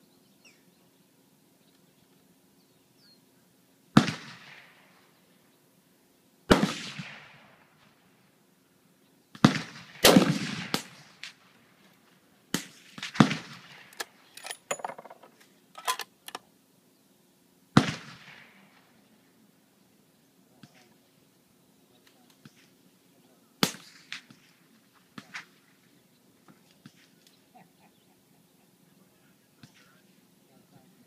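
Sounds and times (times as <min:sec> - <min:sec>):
rifle shots echoing: 0:04.0 - 0:05.2, 0:06.5 - 0:07.9, 0:09.4 - 0:11.6, 0:12.5 - 0:14.2, 0:17.8 - 0:19.0.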